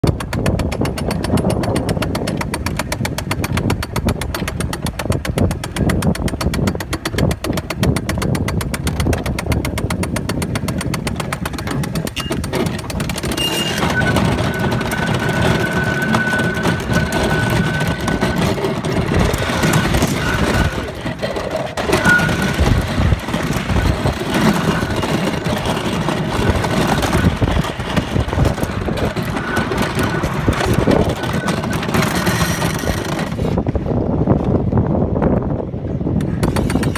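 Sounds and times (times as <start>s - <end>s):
car rumbling over wooden track: 0.0s - 36.9s
chain lift clicking: 0.5s - 33.6s
high wheel squeal: 13.1s - 33.5s.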